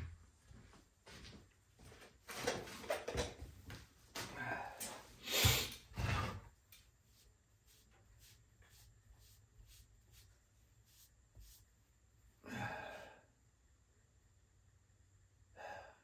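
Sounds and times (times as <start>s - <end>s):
cloth rag swishing: 7.0s - 11.8s.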